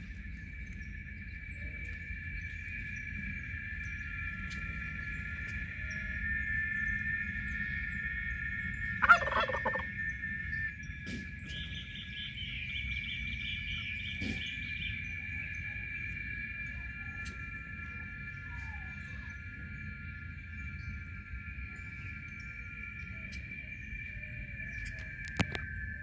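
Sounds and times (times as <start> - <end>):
high-pitched drone: 0.0 - 26.0
turkey gobbling: 9.0 - 9.9.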